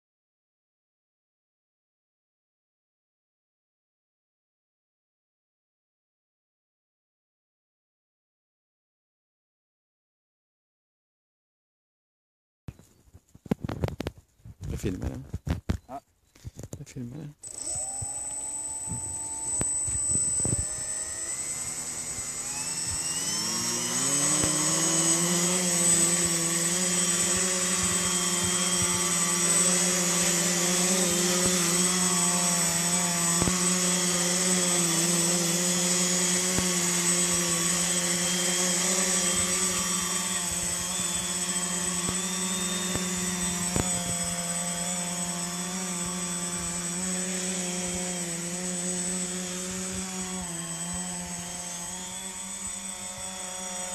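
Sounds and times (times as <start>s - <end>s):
thin high whine: 17.3s - 53.9s
drone motors buzzing: 17.4s - 53.9s.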